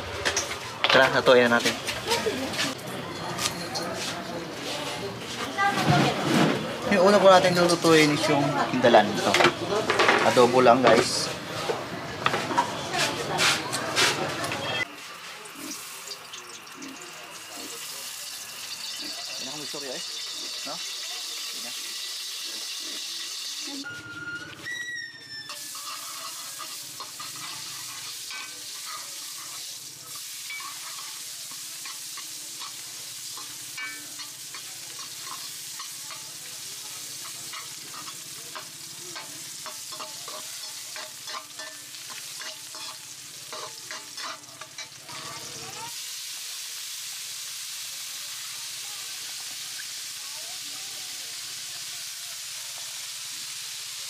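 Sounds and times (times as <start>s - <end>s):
food sizzling in wok: 0.0s - 54.0s
metal spatula scraping wok: 17.6s - 45.9s.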